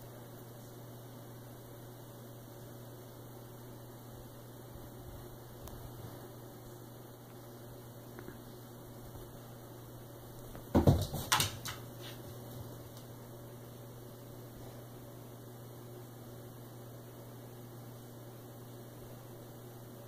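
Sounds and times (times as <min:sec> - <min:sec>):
electrical hum: 0:00.0 - 0:20.0
cat paws scuffing wooden floor: 0:10.4 - 0:13.1
cat landing thump: 0:10.7 - 0:11.6.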